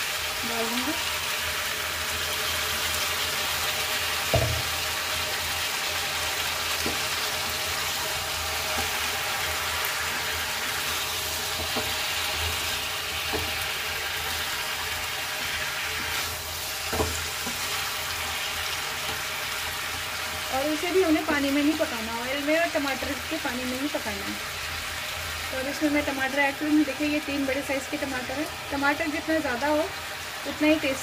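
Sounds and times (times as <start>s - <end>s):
vegetables sizzling in oil: 0.0s - 31.0s
sharp knock: 4.3s - 4.7s
spatula stirring: 6.7s - 19.7s.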